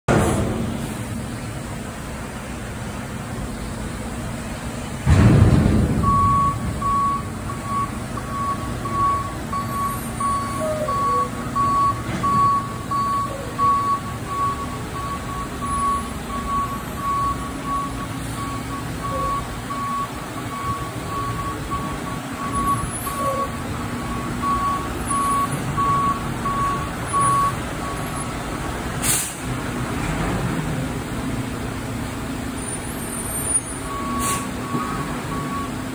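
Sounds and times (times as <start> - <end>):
truck engine running: 0.1 - 35.9
reversing alarm beeping: 6.0 - 28.3, 32.6 - 35.9.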